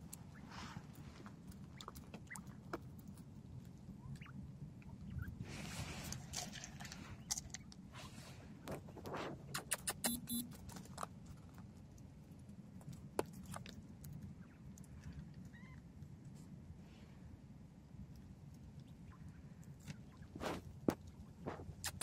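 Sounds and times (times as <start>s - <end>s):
rustling in snow: 5.4s - 6.3s.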